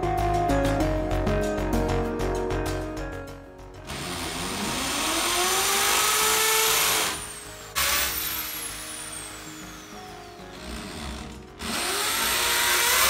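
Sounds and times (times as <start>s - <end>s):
electric drill boring into wall: 3.9s - 13.0s.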